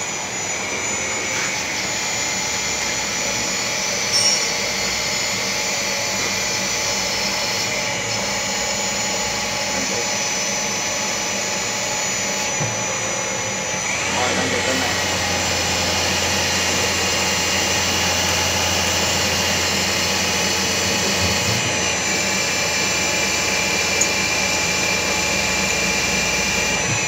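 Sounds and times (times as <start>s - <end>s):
lathe spindle whining: 0.0s - 27.0s
machine noise: 0.0s - 27.0s
machine squeal: 1.3s - 11.1s.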